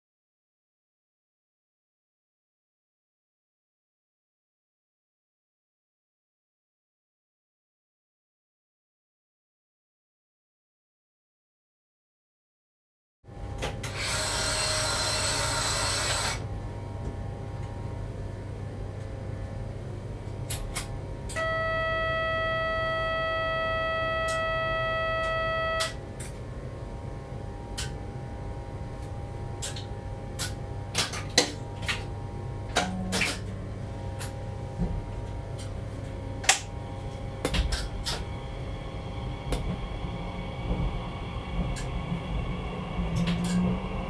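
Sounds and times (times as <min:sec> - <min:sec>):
low hum of train equipment: 0:13.3 - 0:44.0
steady buzzer tone: 0:21.3 - 0:26.0.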